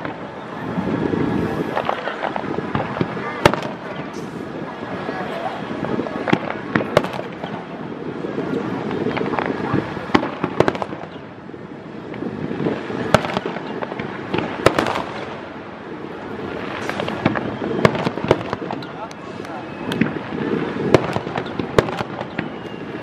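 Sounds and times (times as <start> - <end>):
fireworks display background noise: 0.0 - 23.0
firework shells bursting: 12.8 - 15.5, 16.6 - 22.8.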